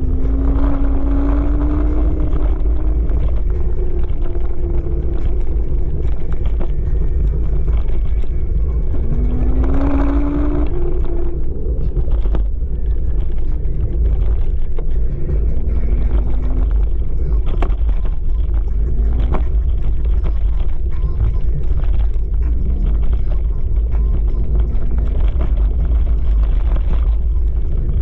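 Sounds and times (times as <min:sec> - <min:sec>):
electric motor whine: 0:00.0 - 0:17.4
wind rumble on microphone: 0:00.0 - 0:28.0.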